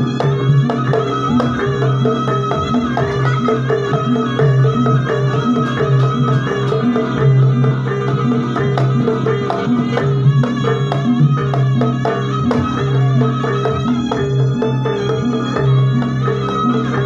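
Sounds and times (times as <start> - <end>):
drums striking a repeating beat: 0.0 - 17.0.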